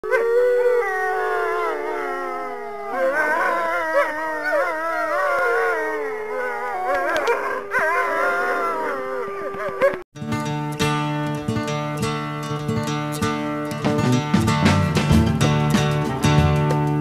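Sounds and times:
wolves howling: 0.0 - 10.0
wolves yipping: 0.0 - 10.0.

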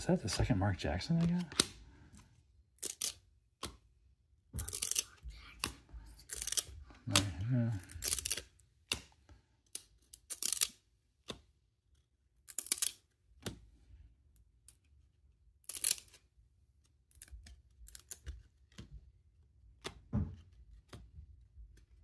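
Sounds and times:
small card clicks: 1.1 - 1.8, 2.8 - 3.8, 4.6 - 11.5, 17.1 - 18.9, 19.7 - 21.1.

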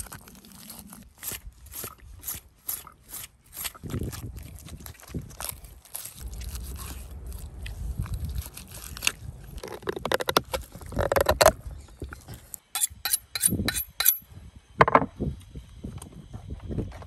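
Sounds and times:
knife scraping raw meat: 0.0 - 7.6, 12.8 - 14.2
knife honed on a steel: 12.8 - 14.2.

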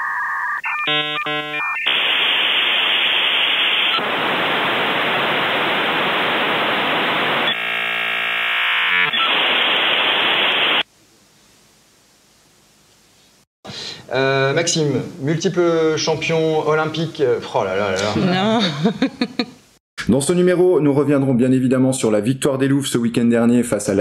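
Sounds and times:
buzzing modem tones: 0.0 - 10.8
dial-up modem hissing static: 0.0 - 10.9.

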